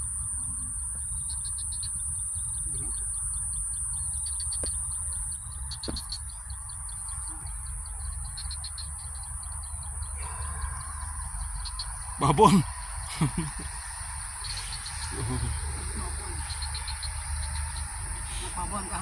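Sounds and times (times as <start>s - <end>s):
low rumble: 0.0s - 19.0s
small birds chirping: 0.0s - 19.0s
high-pitched hiss: 6.9s - 19.0s.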